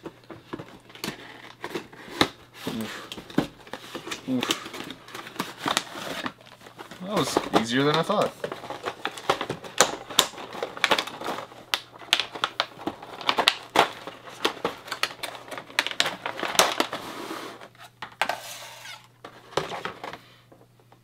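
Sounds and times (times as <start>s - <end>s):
plastic packaging crackling: 0.0s - 17.8s.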